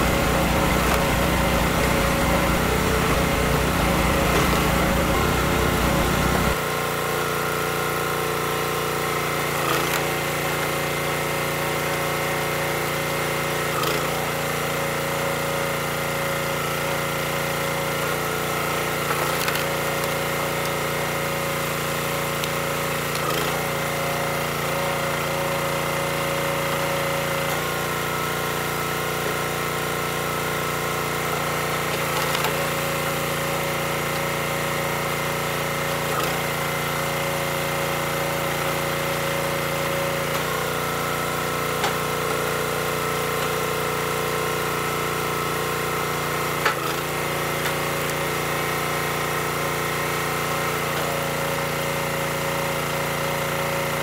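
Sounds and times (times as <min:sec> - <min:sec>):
log splitter engine running: 0:00.0 - 0:54.0
wood splitting cracks: 0:19.1 - 0:20.8.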